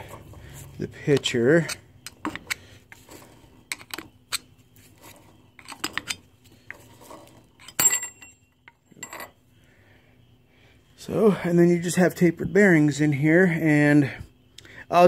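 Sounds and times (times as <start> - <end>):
metal ringing: 7.6 - 9.4
metallic clicks and clinks: 7.6 - 9.4.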